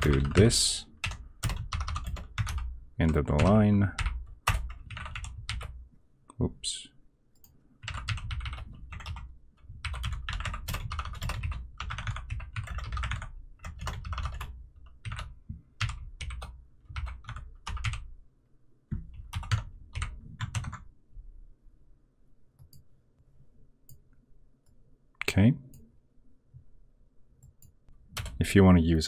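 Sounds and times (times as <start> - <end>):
typing on computer keyboard: 0.0 - 5.8, 7.8 - 18.1, 19.0 - 20.8.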